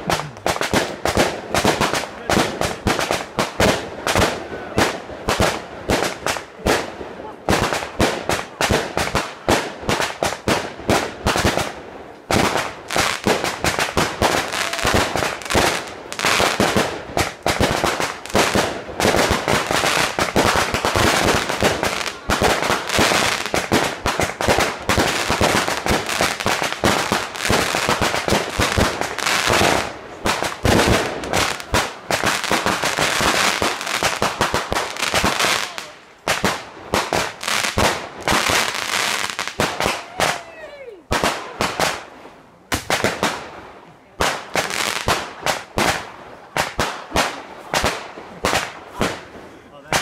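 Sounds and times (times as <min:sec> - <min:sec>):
fireworks bangs and pops: 0:00.0 - 0:50.0.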